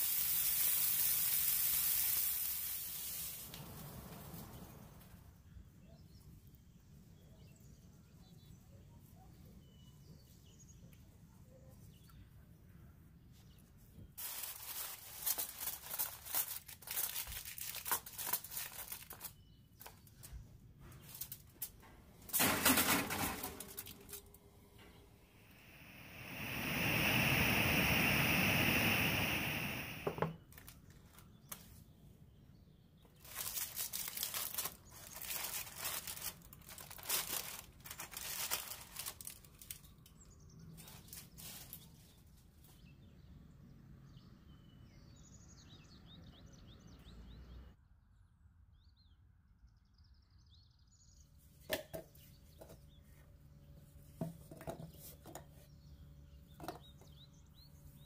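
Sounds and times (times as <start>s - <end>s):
small birds chirping: 4.4s - 16.3s, 16.9s - 22.3s, 39.2s - 47.8s, 54.9s - 58.0s
loud rush of noise: 25.3s - 30.4s.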